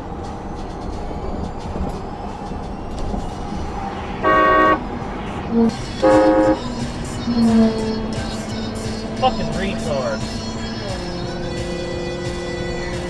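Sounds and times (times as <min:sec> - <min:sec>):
tyre and road noise: 0:00.0 - 0:13.0
car horn: 0:04.2 - 0:13.0.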